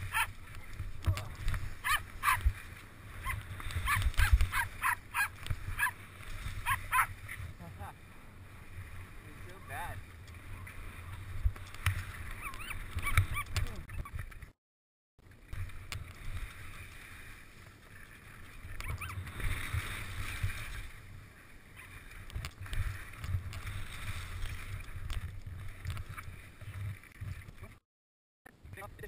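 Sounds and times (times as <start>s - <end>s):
wind buffeting microphone: 0.0s - 4.8s.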